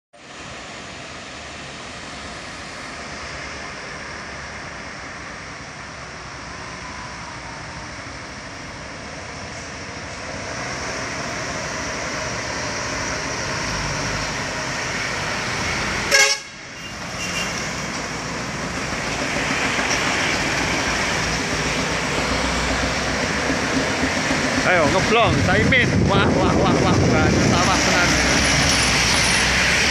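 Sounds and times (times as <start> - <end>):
trucks and traffic driving: 0.2 - 29.9
vehicle horn toot: 16.1 - 17.7.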